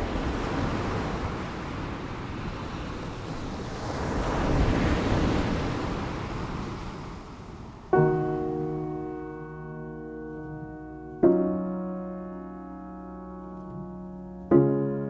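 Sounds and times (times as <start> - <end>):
ocean surf washing onto beach: 0.0 - 12.3
struck chord ringing: 8.0 - 15.0.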